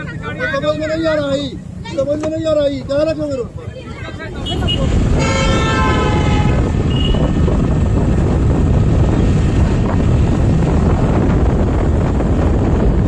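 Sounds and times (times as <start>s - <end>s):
wind and road noise rumble: 0.0s - 13.0s
vehicle horn: 4.4s - 7.5s.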